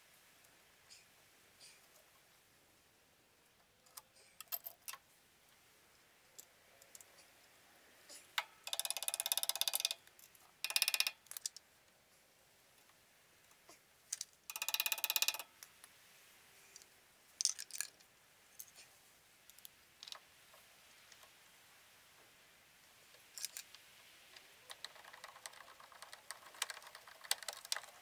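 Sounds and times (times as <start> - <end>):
hand tools clicking and tapping: 8.4 - 11.6, 14.2 - 15.7, 23.4 - 28.0.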